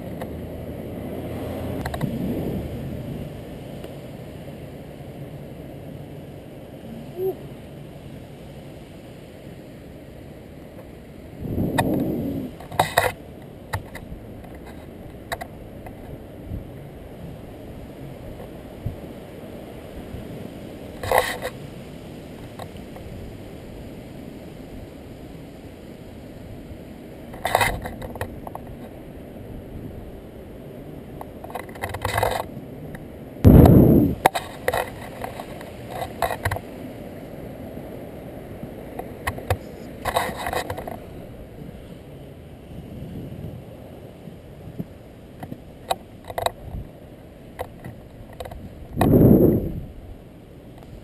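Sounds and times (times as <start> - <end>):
skate wheels rolling on concrete: 10.4 - 20.0, 20.8 - 51.0.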